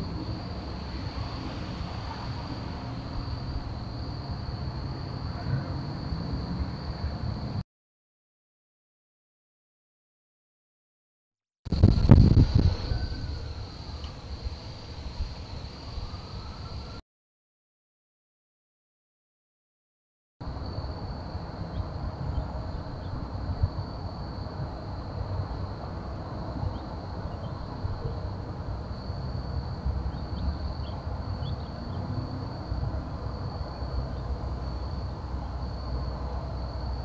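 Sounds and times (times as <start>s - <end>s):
high-pitched insect trill: 0.0s - 7.5s, 11.7s - 17.0s, 20.4s - 37.0s.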